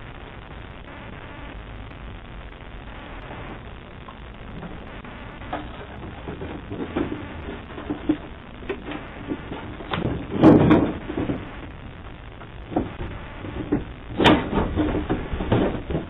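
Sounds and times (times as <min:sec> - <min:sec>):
steady microphone hiss: 0:00.0 - 0:16.0
box knocks and clunks on wooden deck: 0:09.9 - 0:11.4.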